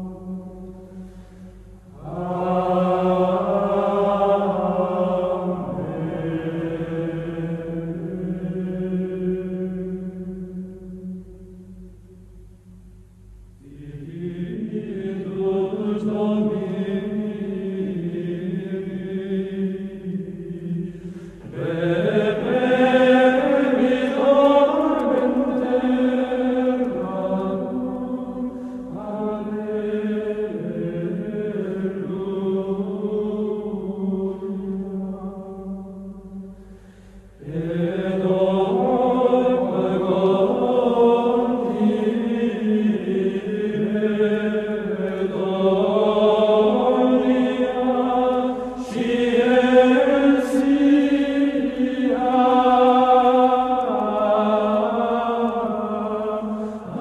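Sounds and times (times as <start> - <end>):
choir chanting slowly: 0.0 - 12.4, 13.6 - 57.0.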